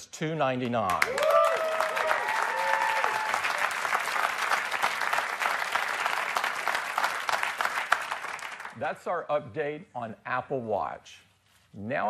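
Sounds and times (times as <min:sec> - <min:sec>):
audience applauding: 0:00.9 - 0:08.8.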